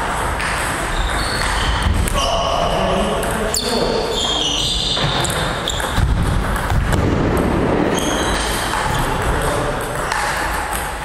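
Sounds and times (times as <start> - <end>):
table tennis ball bouncing: 0.0 - 2.2, 2.9 - 3.6, 5.0 - 11.0
shoe squeaks: 0.8 - 2.7, 3.5 - 6.1, 7.9 - 9.2.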